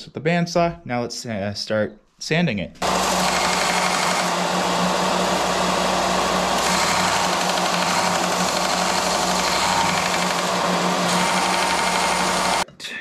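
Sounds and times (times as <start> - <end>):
bench sander motor hum: 2.8 - 12.6.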